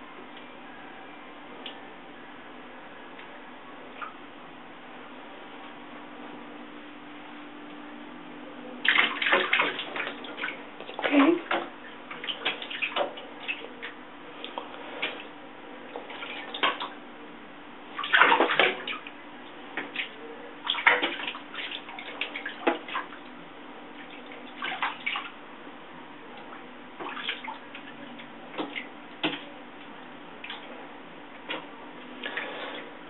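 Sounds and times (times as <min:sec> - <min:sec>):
water splashing in bathtub: 0:08.8 - 0:17.0, 0:17.8 - 0:25.5, 0:26.3 - 0:33.0.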